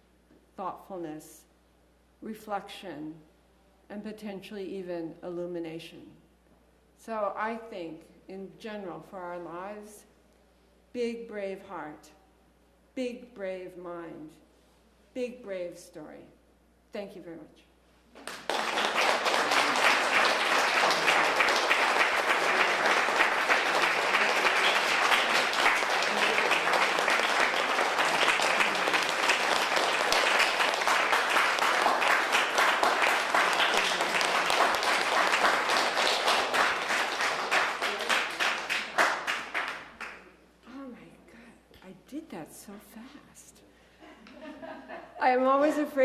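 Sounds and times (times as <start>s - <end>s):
audience applauding: 18.2s - 40.2s.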